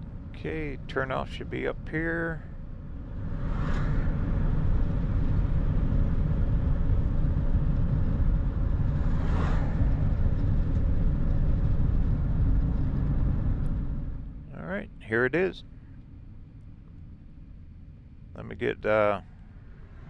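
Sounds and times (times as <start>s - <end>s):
road and engine rumble: 0.0s - 20.0s
passing vehicle whoosh: 2.6s - 14.4s, 19.4s - 20.0s.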